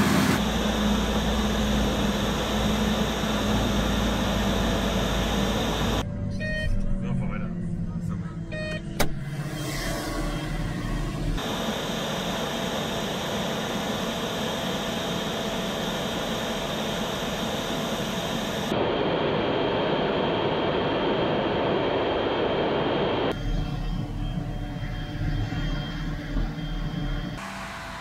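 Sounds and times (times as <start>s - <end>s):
tractor machine noise: 0.0s - 6.0s.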